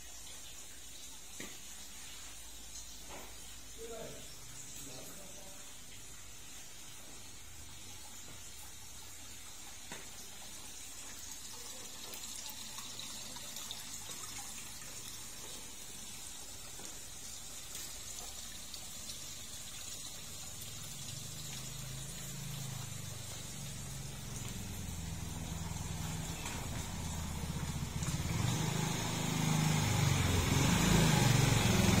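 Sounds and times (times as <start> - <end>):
fountain water splashing into pond: 0.0 - 32.0
motorbike engine hum: 21.7 - 32.0.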